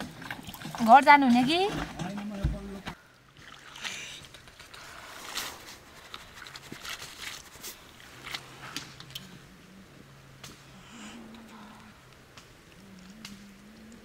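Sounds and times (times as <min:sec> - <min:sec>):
noodles splashing in water: 0:03.4 - 0:08.4.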